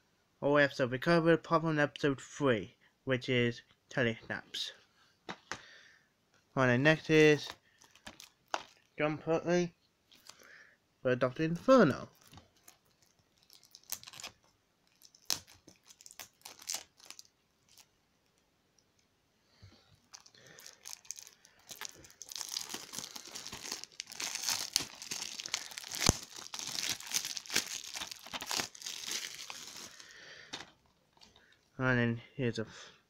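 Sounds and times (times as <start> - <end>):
plastic wrap crinkling and tearing: 7.3 - 9.0, 10.1 - 10.4, 11.6 - 18.4, 20.0 - 31.3.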